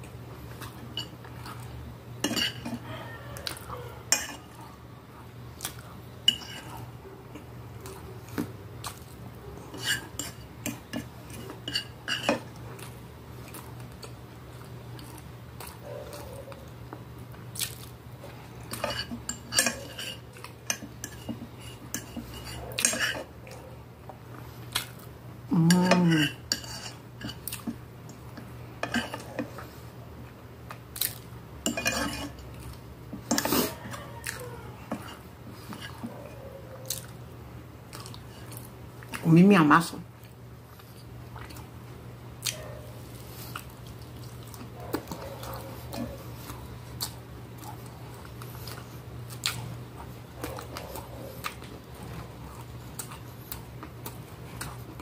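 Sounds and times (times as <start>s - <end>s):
chewing: 0.0s - 4.8s, 5.5s - 37.2s, 37.9s - 39.2s, 40.2s - 41.7s, 42.4s - 55.0s
fork scraping on glass plate: 2.2s - 2.8s, 9.7s - 12.5s, 18.7s - 23.3s, 25.9s - 27.4s, 31.6s - 32.4s.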